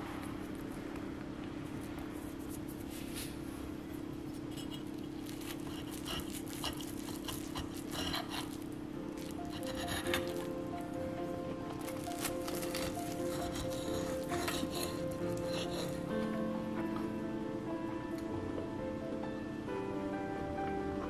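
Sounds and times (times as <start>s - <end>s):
steady low hum: 0.0s - 21.0s
knife and fork scraping on plate: 4.3s - 10.6s, 11.9s - 16.1s.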